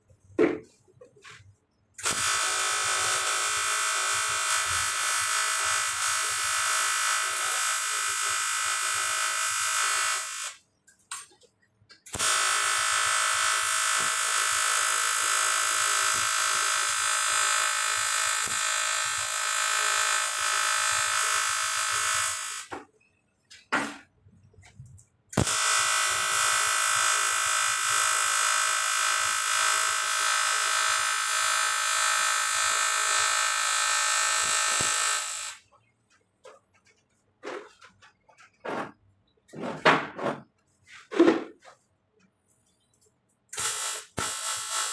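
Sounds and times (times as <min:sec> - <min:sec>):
welding arc buzzing: 0:02.0 - 0:22.9, 0:24.6 - 0:35.8, 0:42.6 - 0:44.9.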